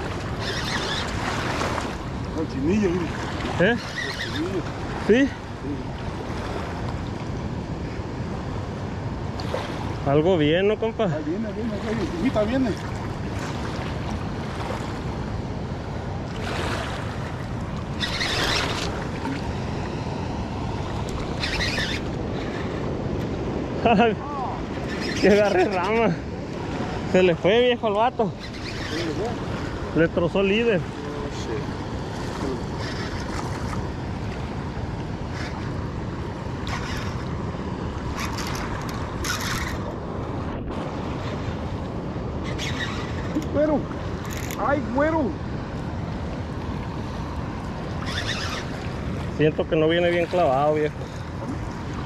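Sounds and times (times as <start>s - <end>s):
shallow river rushing: 0.0s - 52.0s
wind rumble on microphone: 11.2s - 52.0s.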